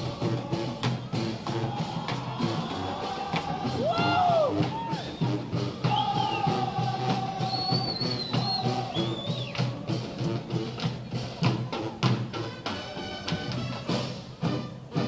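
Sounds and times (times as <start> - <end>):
drum cadence: 0.0 - 14.4
marching band playing: 0.0 - 15.0
whistle from crowd: 0.9 - 3.2, 3.8 - 9.8
crowd whooping: 0.9 - 9.8.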